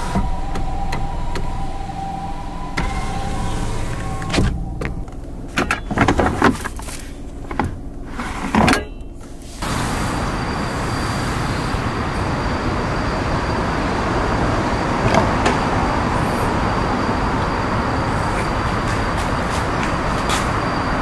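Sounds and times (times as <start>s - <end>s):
power window motor whining: 0.0s - 8.3s.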